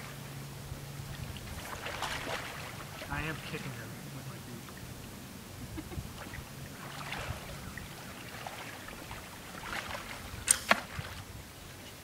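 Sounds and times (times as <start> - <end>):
wading through shallow water: 0.0 - 12.0
sharp snap: 10.4 - 10.9.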